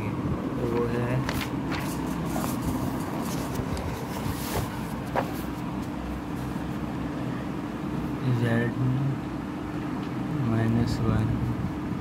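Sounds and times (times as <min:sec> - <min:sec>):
steady background hum: 0:00.0 - 0:12.0
notebook page turning: 0:00.7 - 0:06.0.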